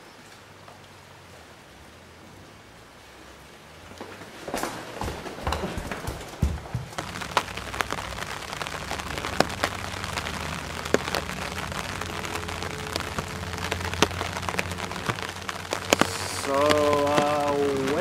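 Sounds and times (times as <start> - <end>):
light rain pattering: 0.0 - 18.0
low steady rumble: 6.9 - 18.0.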